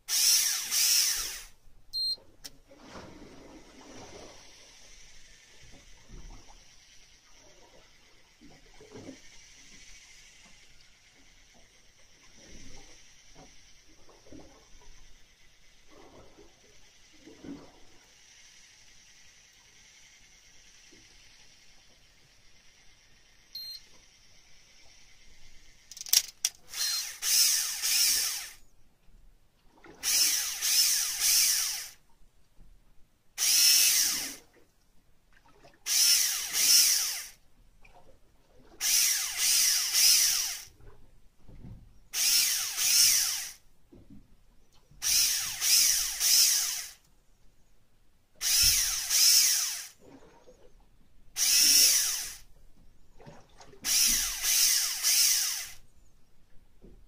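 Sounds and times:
electric fishing reel motor whining: 0.1s - 1.6s, 25.9s - 28.6s, 30.0s - 32.0s, 33.4s - 34.4s, 35.9s - 37.4s, 38.8s - 40.7s, 42.2s - 43.6s, 45.0s - 47.0s, 48.4s - 50.0s, 51.4s - 52.5s, 53.9s - 55.8s.

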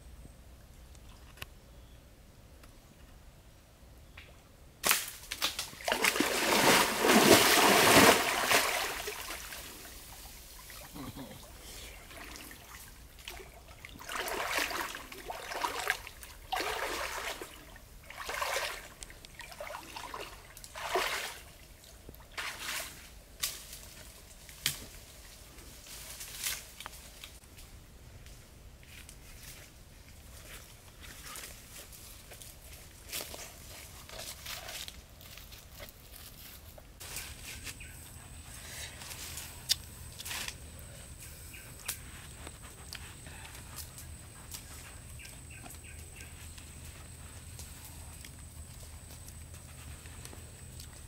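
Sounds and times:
water splashing and sloshing: 5.4s - 23.2s.

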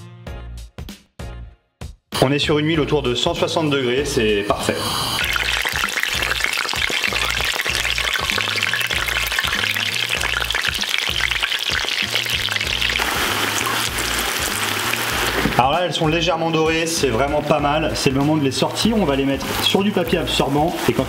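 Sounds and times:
background music with bass beat: 0.0s - 3.2s, 5.2s - 21.0s
food deep-frying in oil: 4.3s - 21.0s.

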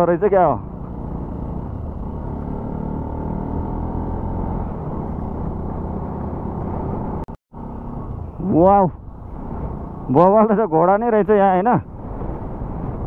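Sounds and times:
motorcycle engine running: 0.6s - 10.3s.

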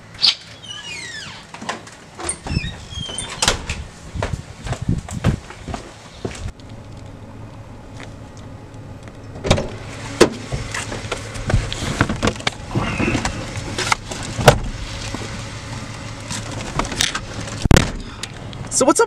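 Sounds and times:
car engine idling: 6.5s - 18.8s.

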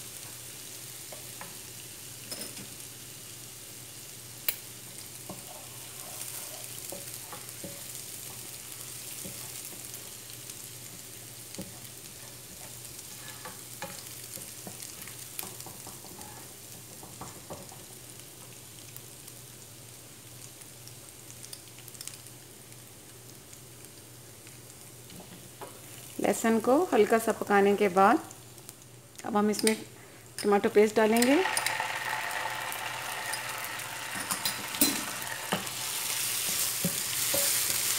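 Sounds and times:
garlic sizzling in oil: 0.0s - 37.9s
spoon scraping and tapping pan: 30.4s - 37.9s.

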